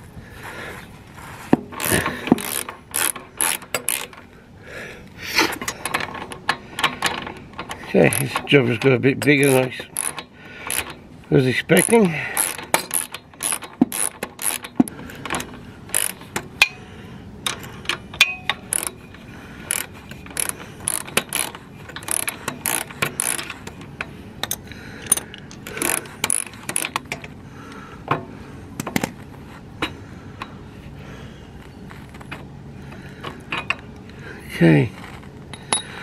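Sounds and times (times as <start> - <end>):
socket ratchet clicking: 1.8 - 4.3, 5.6 - 11.0, 11.7 - 16.8, 17.4 - 19.0, 19.6 - 27.4
small metal clinks: 11.7 - 27.4, 35.0 - 36.0.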